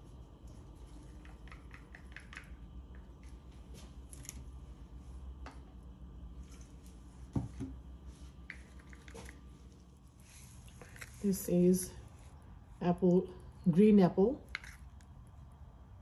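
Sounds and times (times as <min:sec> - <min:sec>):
steady low hum: 0:00.0 - 0:16.0
paint bottles clicking: 0:01.1 - 0:03.0.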